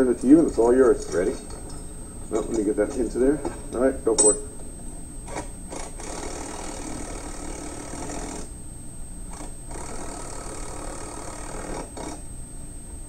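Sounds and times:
impact wrench hammering: 5.3 - 8.5.

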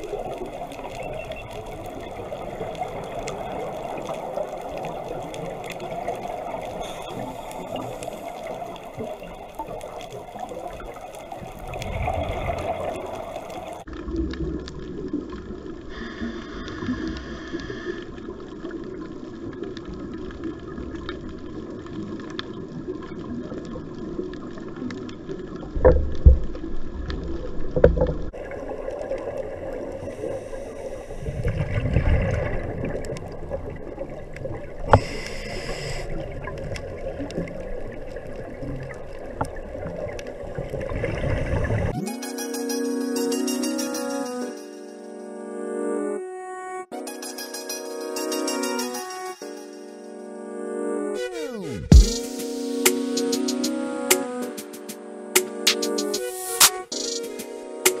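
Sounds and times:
scuba exhale bubbling: 0.0 - 19.1, 28.2 - 42.0
underwater rush of water: 0.0 - 42.0.

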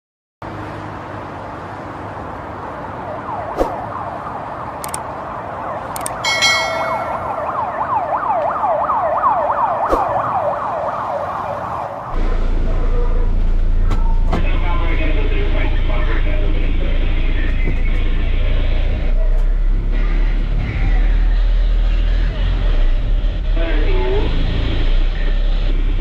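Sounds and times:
sharp clicks: 4.8 - 5.1, 5.9 - 6.2
siren yelping: 5.6 - 12.2
short bright chime: 6.3 - 7.3.

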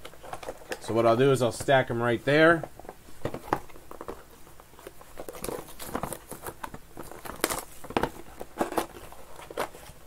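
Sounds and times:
plastic wrap crinkling: 3.3 - 10.0.

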